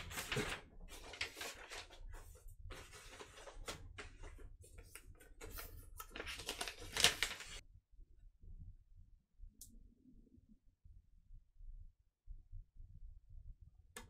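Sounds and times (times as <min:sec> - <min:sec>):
packaging rustling and scraping: 0:00.0 - 0:07.6.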